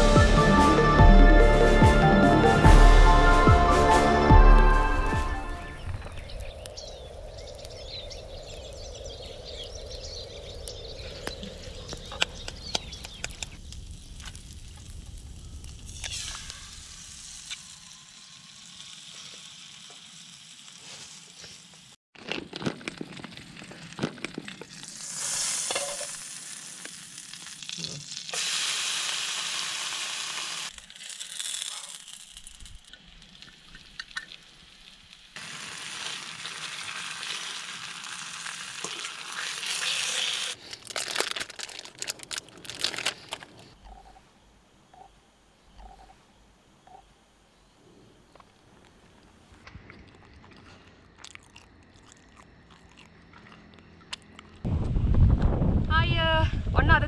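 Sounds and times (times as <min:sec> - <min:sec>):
egg sizzling in a frying pan: 0:13.4 - 0:22.0, 0:24.4 - 0:40.9.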